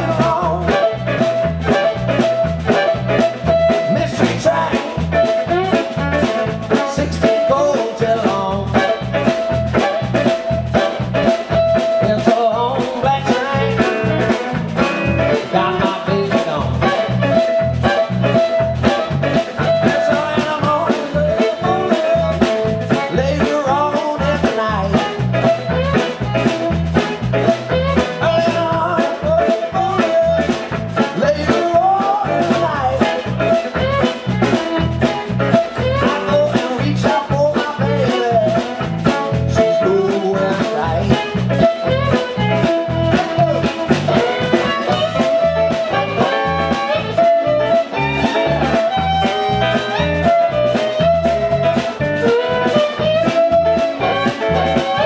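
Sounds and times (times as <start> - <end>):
live blues band playing: 0.0 - 55.0.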